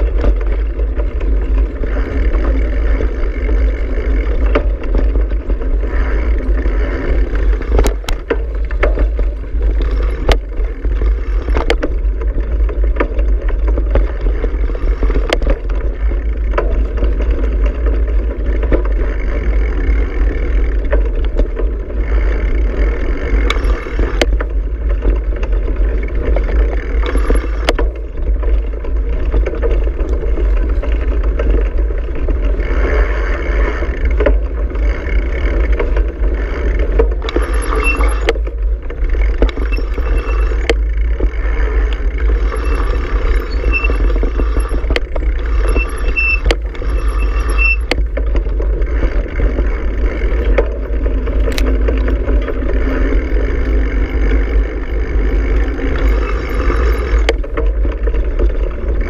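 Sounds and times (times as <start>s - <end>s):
bicycle rumbling over dirt track: 0.0s - 59.0s
bike clicks and rattles: 0.0s - 59.0s.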